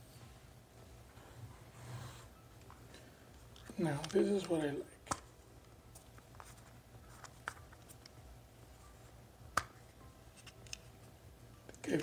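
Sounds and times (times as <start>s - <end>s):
plastic case clicks and taps: 9.5s - 9.8s.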